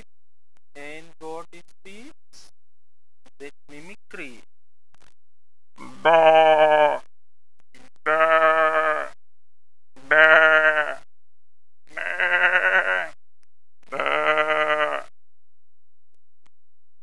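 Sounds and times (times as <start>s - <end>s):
person imitating sheep bleat: 5.8s - 7.0s, 8.1s - 9.2s, 10.1s - 11.0s, 12.0s - 13.2s, 13.9s - 15.1s.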